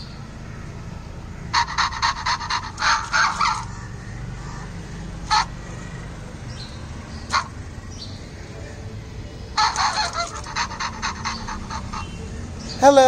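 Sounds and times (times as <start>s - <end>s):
electronic dog yips: 1.5s - 3.7s, 5.3s - 5.6s, 7.2s - 7.6s, 9.6s - 12.2s
electronic panting and yapping: 1.5s - 4.0s, 5.2s - 5.7s, 7.2s - 8.6s, 9.4s - 12.3s.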